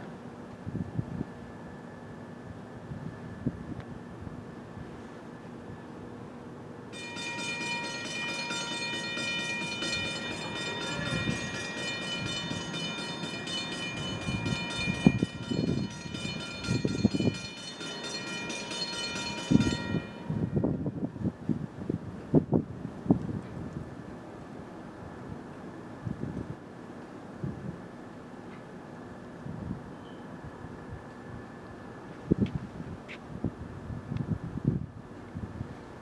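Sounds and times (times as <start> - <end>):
train horn chord: 7.0 - 20.8.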